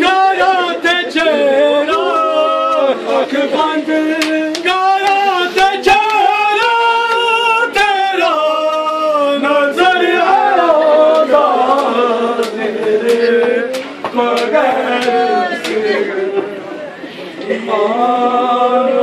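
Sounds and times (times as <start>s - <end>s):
men singing a lament together: 0.0s - 19.0s
sharp slaps: 4.2s - 5.2s, 11.1s - 15.8s.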